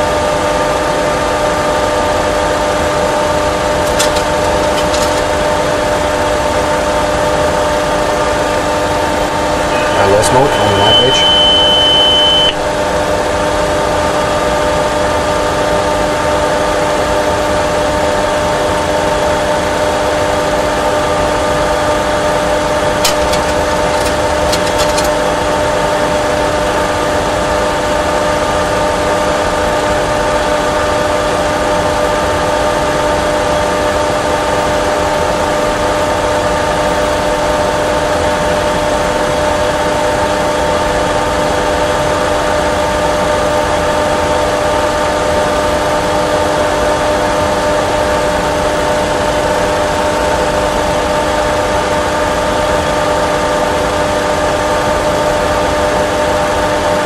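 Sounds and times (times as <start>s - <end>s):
simulated engine and airflow noise: 3.2s - 13.1s, 22.3s - 27.0s.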